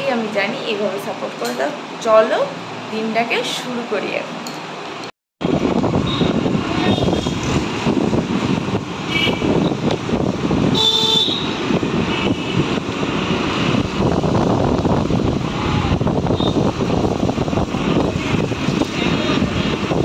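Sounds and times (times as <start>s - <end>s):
road and wind noise: 0.0s - 20.0s
street traffic: 0.0s - 20.0s
vehicle horn beeping: 6.0s - 7.4s, 9.1s - 9.8s, 10.7s - 12.6s.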